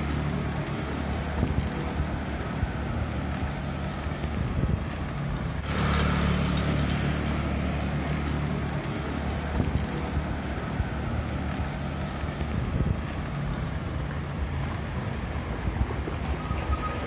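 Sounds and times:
bicycle rolling over stone paving: 0:00.0 - 0:17.0
small rattles: 0:00.0 - 0:17.0
wind on microphone: 0:04.2 - 0:05.3.

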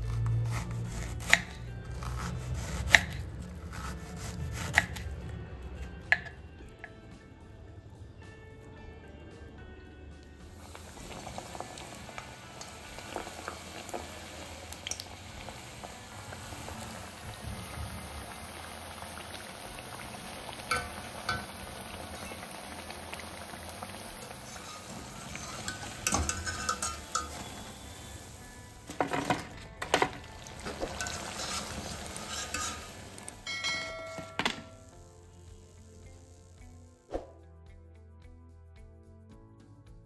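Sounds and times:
deep-frying sizzle: 0:10.4 - 0:36.8
skimmer scraping a pan: 0:10.6 - 0:34.9.

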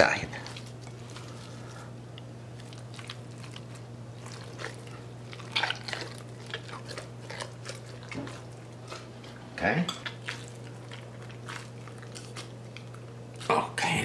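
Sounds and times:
hands squelching stuffing into turkey: 0:00.3 - 0:09.4.

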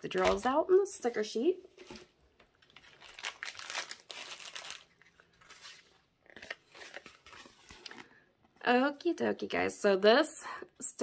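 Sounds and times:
plastic packaging crinkling: 0:00.0 - 0:00.7, 0:01.8 - 0:08.2
paper rustling: 0:01.7 - 0:08.2.

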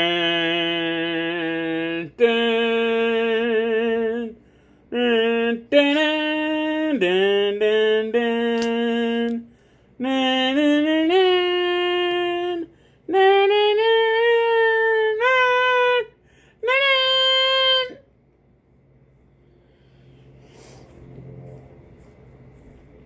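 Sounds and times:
person singing wordless long notes: 0:00.0 - 0:18.0.

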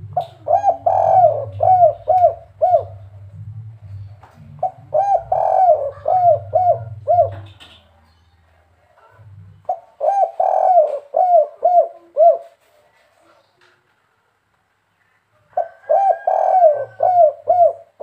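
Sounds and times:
dove cooing: 0:00.0 - 0:07.8, 0:09.1 - 0:12.6, 0:15.5 - 0:18.0.

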